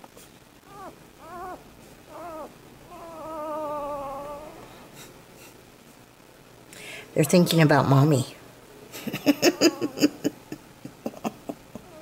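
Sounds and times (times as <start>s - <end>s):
puppies whimpering: 0.7s - 4.6s.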